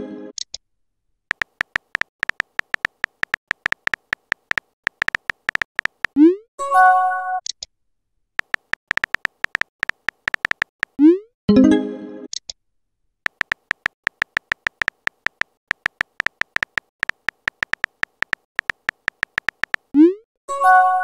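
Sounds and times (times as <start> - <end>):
keyboard typing clicks: 1.3 - 6.2, 8.4 - 11.0, 13.3 - 20.0.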